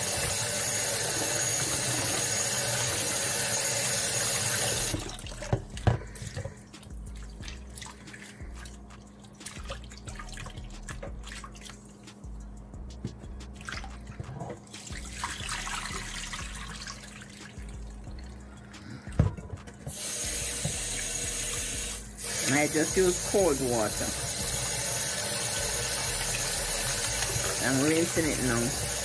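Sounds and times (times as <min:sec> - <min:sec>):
hands splashing water in a bowl: 0:04.9 - 0:12.3.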